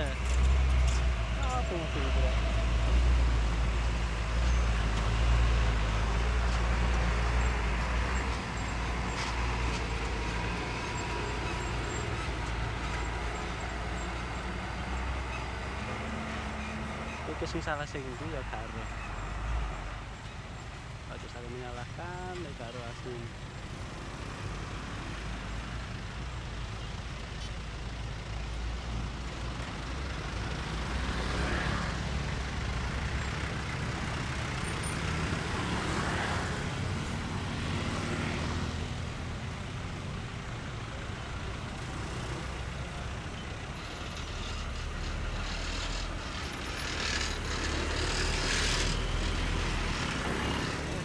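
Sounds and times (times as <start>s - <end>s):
motorbikes running: 0.0s - 51.0s
truck engines idling: 0.0s - 51.0s.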